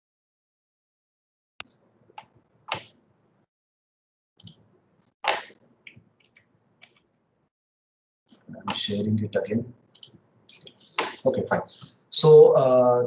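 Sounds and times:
keyboard and mouse clicks: 1.6s - 3.0s, 4.4s - 4.6s, 5.2s - 7.1s, 10.0s - 11.2s.

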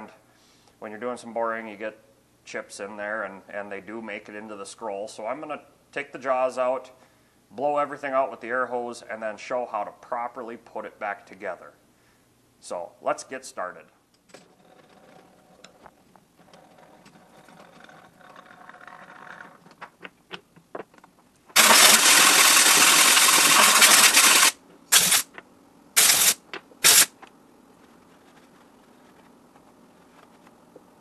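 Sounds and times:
compressed air blow gun hissing: 21.6s - 25.3s, 26.0s - 27.1s.

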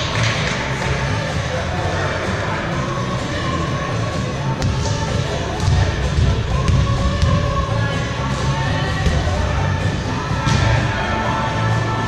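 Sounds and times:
crowd murmur: 0.0s - 12.0s
music playing: 0.0s - 12.0s.

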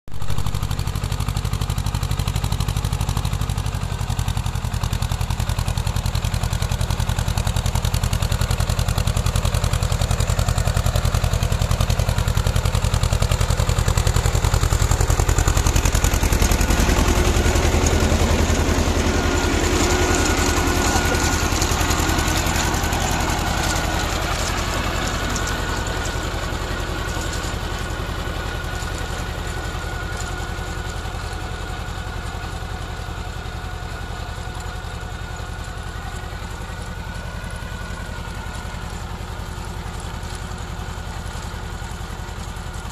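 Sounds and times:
tractor diesel engine running: 0.1s - 42.9s.

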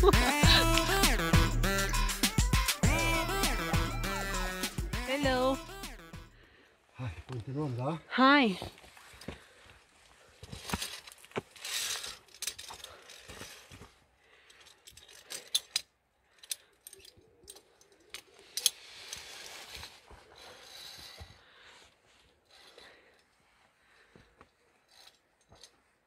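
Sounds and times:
carabiners clinking on steel cable: 10.6s - 21.4s, 22.2s - 23.4s, 24.5s - 26.0s
soft rustling: 17.5s - 26.0s.

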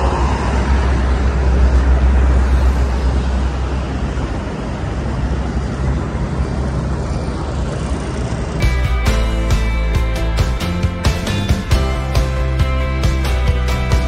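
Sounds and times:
road traffic: 0.0s - 14.0s.

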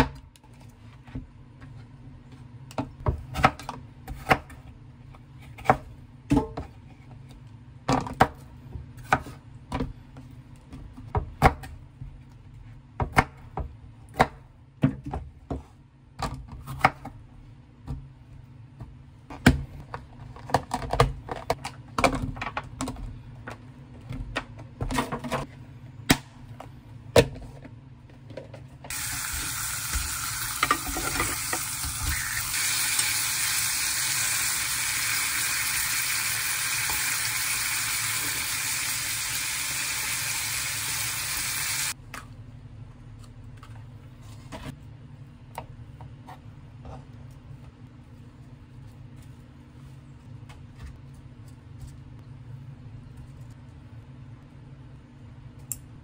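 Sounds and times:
meat sizzling in a pan: 28.9s - 42.0s.

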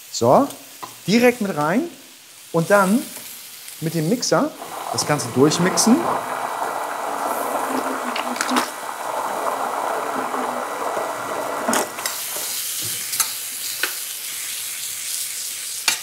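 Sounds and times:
stick blender churning liquid: 4.6s - 12.5s.

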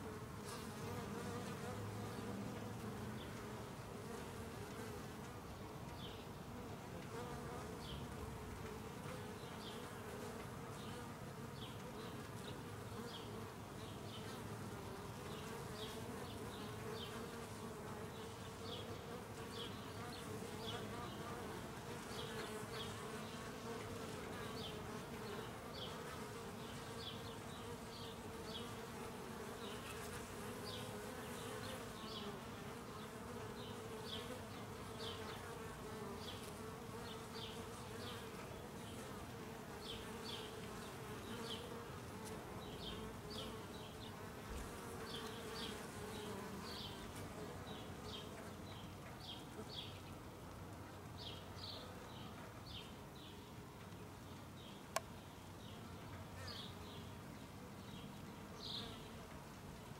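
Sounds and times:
bees buzzing: 12.8s - 48.2s.

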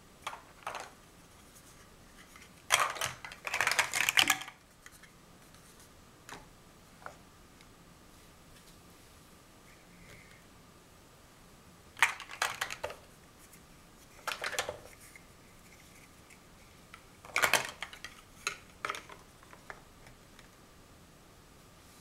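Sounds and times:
plastic blocks clacking together: 0.2s - 1.0s, 2.3s - 5.1s, 12.0s - 13.0s, 14.2s - 15.0s, 17.2s - 20.2s.

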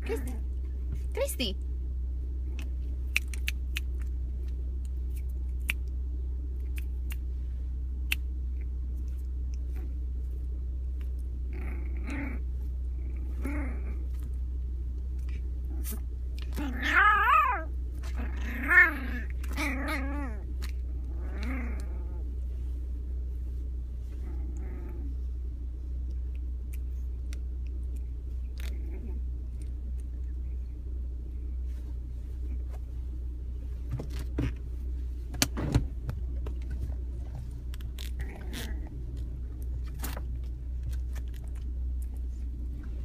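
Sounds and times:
puppy growling whinily: 0.0s - 0.5s, 11.4s - 14.3s, 15.3s - 22.5s, 24.2s - 25.3s, 28.6s - 29.3s, 37.3s - 40.2s
car interior hum: 0.0s - 43.0s.

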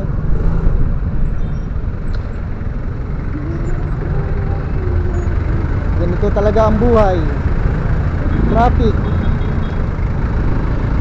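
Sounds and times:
motorcycle engine rumble: 0.0s - 11.0s
stop-and-go traffic: 0.0s - 11.0s
held pitched tone: 3.1s - 6.5s.

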